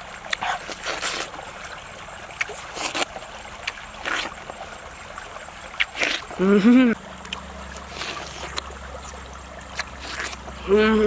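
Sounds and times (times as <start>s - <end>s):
crunchy bites of watermelon: 0.3s - 1.5s, 2.4s - 4.5s, 5.8s - 6.5s, 7.2s - 10.6s
slurping juice: 0.3s - 1.5s, 2.4s - 4.5s, 5.8s - 10.6s.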